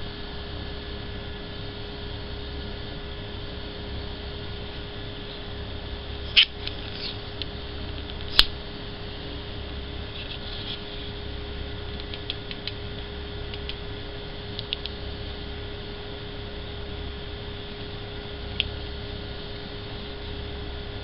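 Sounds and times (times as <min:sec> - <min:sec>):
steady low hum and hiss: 0:00.0 - 0:21.0
torch clicking: 0:06.3 - 0:08.6.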